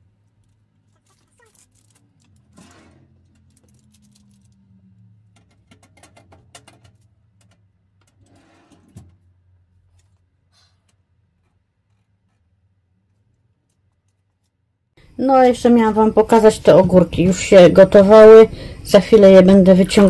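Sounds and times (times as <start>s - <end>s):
clicks and rustles of handling: 0.0s - 14.6s
low steady hum: 15.0s - 20.0s.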